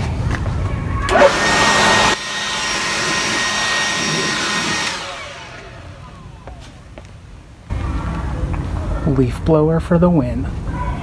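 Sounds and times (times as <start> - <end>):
leaf blower running: 1.0 - 6.6.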